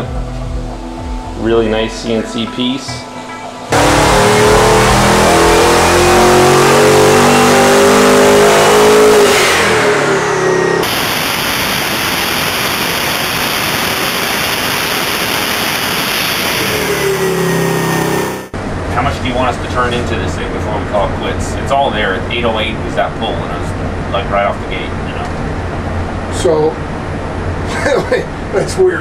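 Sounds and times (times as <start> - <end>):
engine revving at full throttle: 3.7 - 20.0
falling turbo whistle: 13.6 - 18.5.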